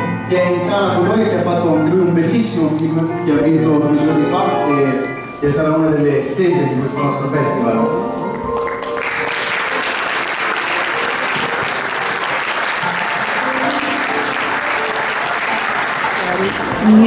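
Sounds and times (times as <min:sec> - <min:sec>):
music: 0:00.0 - 0:17.0
audience applauding: 0:08.5 - 0:17.0.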